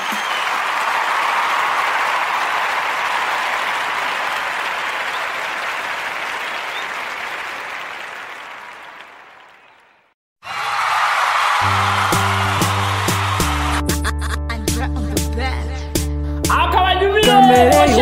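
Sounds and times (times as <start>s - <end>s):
crowd applause: 0.0s - 14.2s.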